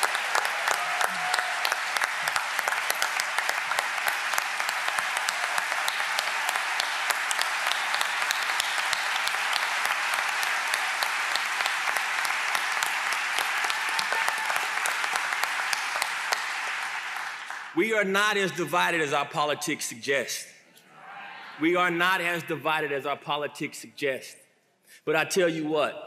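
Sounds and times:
audience applauding: 0.0s - 17.8s.

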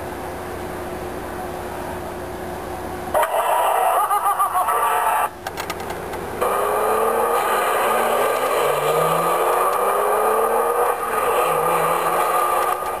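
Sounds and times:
car engine accelerating: 6.4s - 13.0s.

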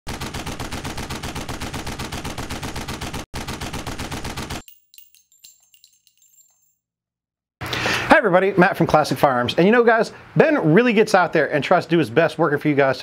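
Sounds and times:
rapid automatic gunfire: 0.1s - 4.6s
light metallic clinks: 4.6s - 6.8s
high ringing: 4.6s - 6.9s.

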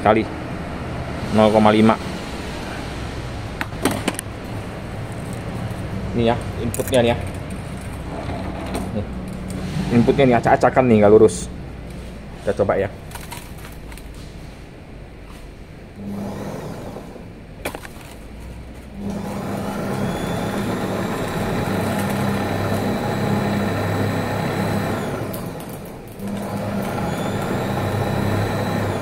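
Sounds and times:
wire-straightening machine whine: 1.2s - 12.0s, 16.0s - 17.4s, 18.8s - 29.0s.

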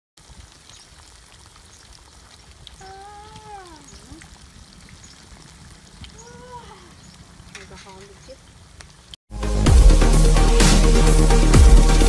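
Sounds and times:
oil sizzling with small pops: 0.2s - 9.2s.

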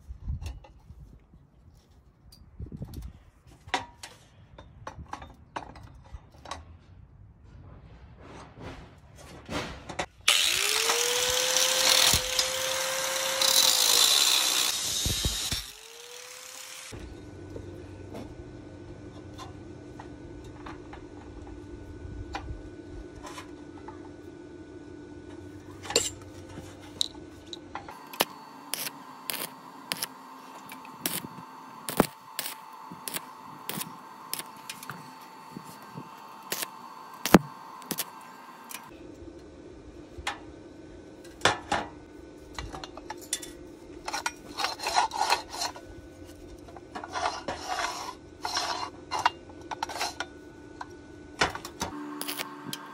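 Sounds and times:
welding arc crackle with pops: 10.3s - 17.0s, 27.9s - 38.9s, 51.8s - 52.9s.

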